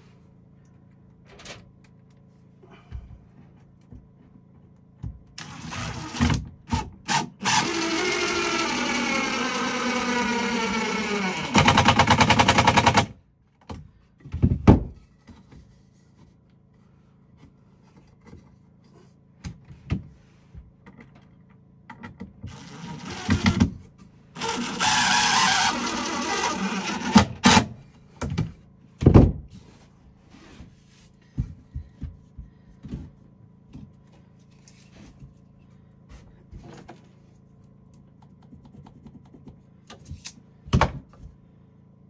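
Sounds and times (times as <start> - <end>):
power tool running: 7.1 - 13.1, 22.5 - 23.7, 24.4 - 27.8.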